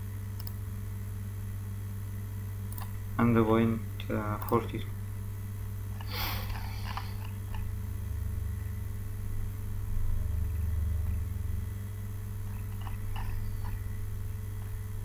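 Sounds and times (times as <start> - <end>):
low electrical hum: 0.0 - 15.0
faint clicks: 0.4 - 0.6, 2.7 - 3.0.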